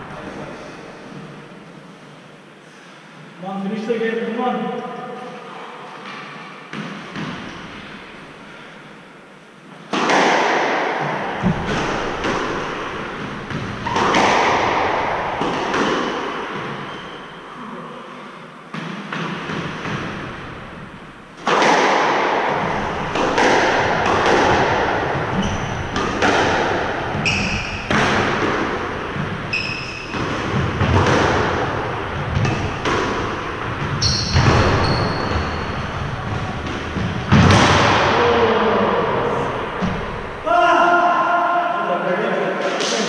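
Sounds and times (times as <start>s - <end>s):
squash ball hits echoing: 6.7s - 8.0s, 9.9s - 17.5s, 18.7s - 40.5s
shoes squeaking on wooden floor: 25.3s - 26.0s, 27.2s - 27.8s, 29.2s - 30.3s, 33.8s - 36.6s.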